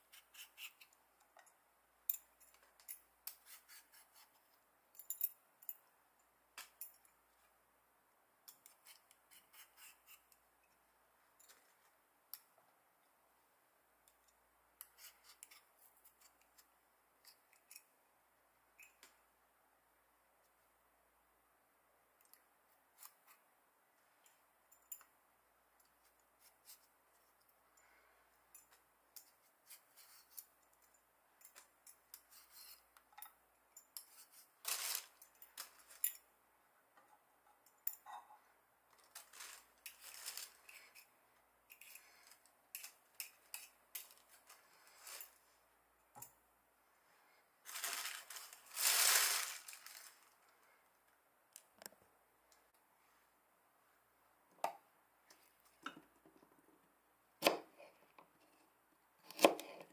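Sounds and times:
peeler scraping potato: 0:00.1 - 0:00.9, 0:03.3 - 0:04.3, 0:08.6 - 0:10.3
plastic bag rustling: 0:34.6 - 0:36.0, 0:39.0 - 0:40.8, 0:44.1 - 0:45.4, 0:47.6 - 0:50.5.

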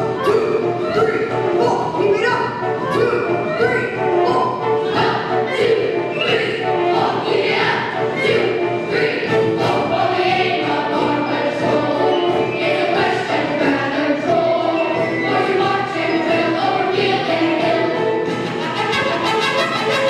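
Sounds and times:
accompanying music: 0:00.0 - 0:20.0
children singing together: 0:02.8 - 0:18.9.

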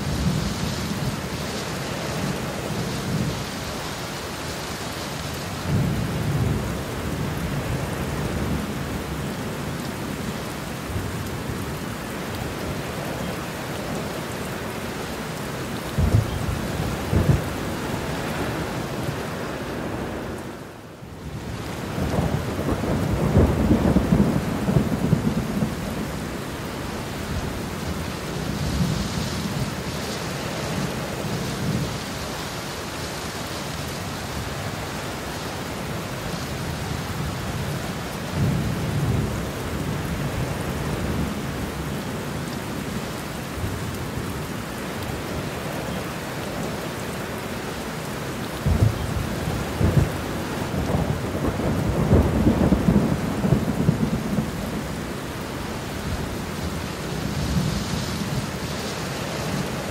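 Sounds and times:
heavy rain: 0:00.0 - 0:59.9
rolling thunder: 0:15.9 - 0:18.2, 0:21.9 - 0:26.2, 0:48.6 - 0:55.0.

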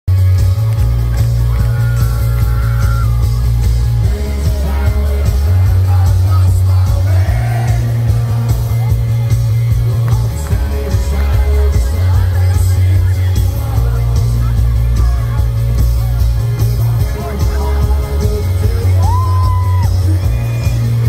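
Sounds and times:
heavy bass: 0:00.1 - 0:21.0
live rock band playing: 0:00.1 - 0:21.0
person singing: 0:01.3 - 0:21.0.

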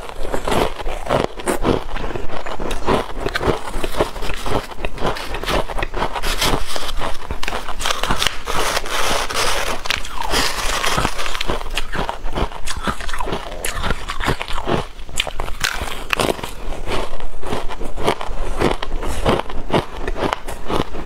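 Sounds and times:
frost crunching as chewed: 0:00.0 - 0:21.0
wooden spoon scraping a bowl: 0:02.7 - 0:11.5.

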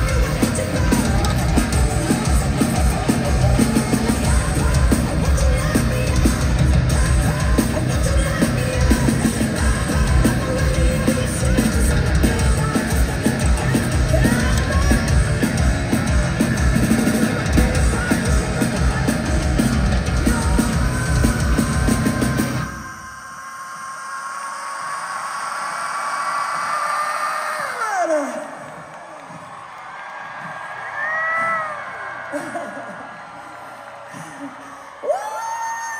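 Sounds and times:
heavy drumming: 0:00.0 - 0:22.8
heavy metal band playing live: 0:00.0 - 0:23.0
distorted guitars: 0:00.0 - 0:23.4.

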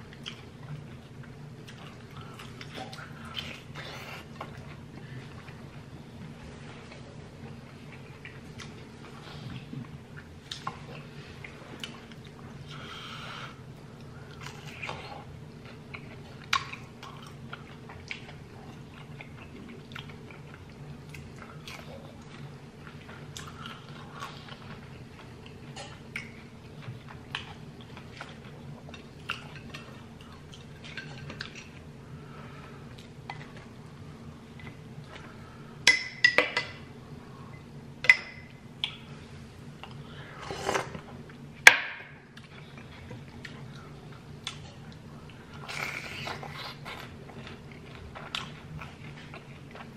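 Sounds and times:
low room hum: 0:00.0 - 0:49.9
chewing and biting food: 0:42.3 - 0:49.9.

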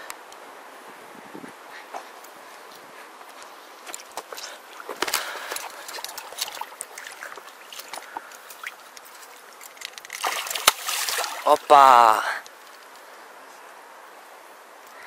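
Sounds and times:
river water splashing: 0:02.2 - 0:13.0.

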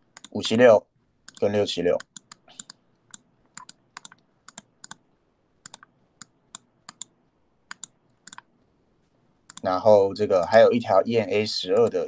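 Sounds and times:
computer keyboard and mouse clicking: 0:00.1 - 0:00.4, 0:01.2 - 0:05.0, 0:05.6 - 0:08.5, 0:09.5 - 0:09.7.

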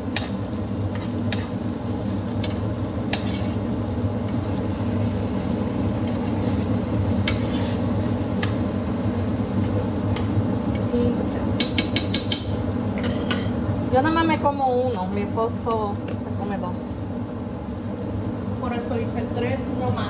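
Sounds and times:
utensils tapping a pan: 0:00.1 - 0:01.6, 0:02.4 - 0:03.6, 0:11.6 - 0:13.5.

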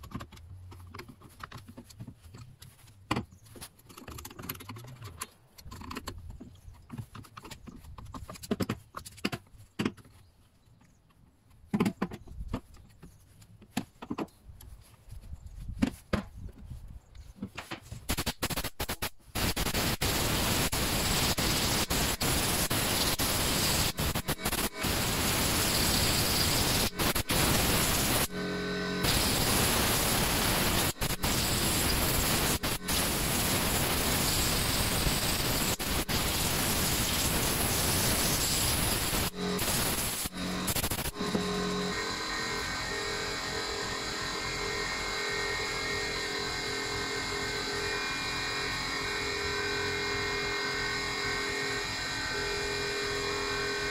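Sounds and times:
loud steady hiss: 0:18.0 - 0:53.9.

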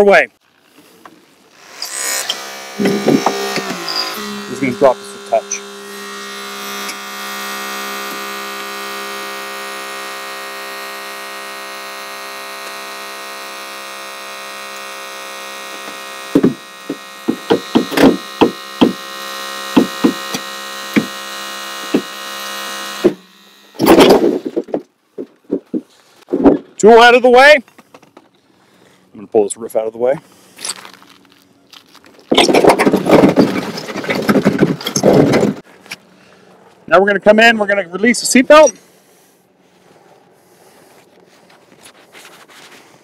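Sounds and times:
hydraulic cutter electric whine: 0:01.0 - 0:24.8, 0:32.3 - 0:36.2, 0:37.3 - 0:39.1
loud metal crunch: 0:01.7 - 0:05.8, 0:22.9 - 0:24.9, 0:32.2 - 0:35.6.

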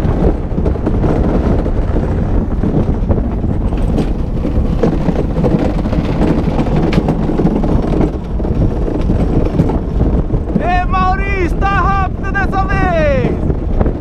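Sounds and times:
rattles and knocks: 0:00.0 - 0:10.7
cart wheels rumbling on concrete: 0:00.0 - 0:14.0
wind buffeting microphone: 0:00.0 - 0:14.0.

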